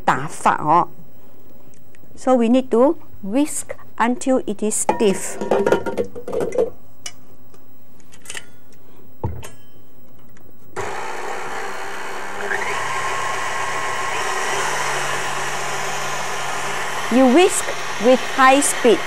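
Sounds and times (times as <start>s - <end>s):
stand mixer whipping cream: 10.8s - 19.0s.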